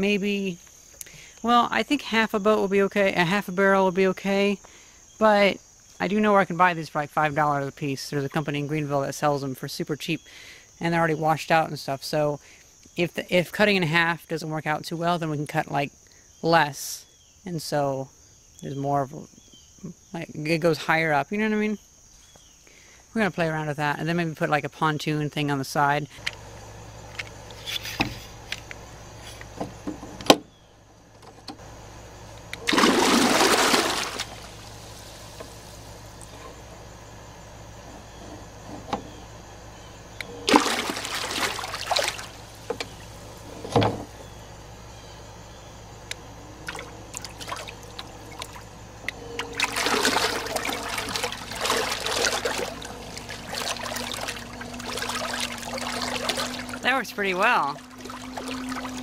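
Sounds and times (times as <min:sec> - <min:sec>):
propeller churning and splashing water: 0:31.4 - 0:37.0, 0:37.7 - 0:44.7, 0:46.0 - 0:59.0
steady motor whine: 0:34.2 - 0:59.0.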